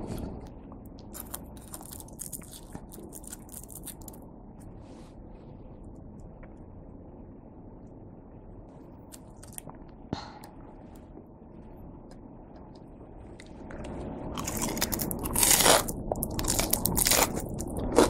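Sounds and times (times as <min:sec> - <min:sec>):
crunchy food being chewed: 0:00.8 - 0:04.2, 0:13.4 - 0:18.0.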